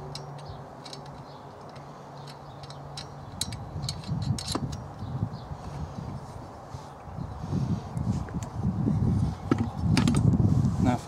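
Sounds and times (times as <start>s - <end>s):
metal parts clicking and tapping: 0.0s - 4.9s.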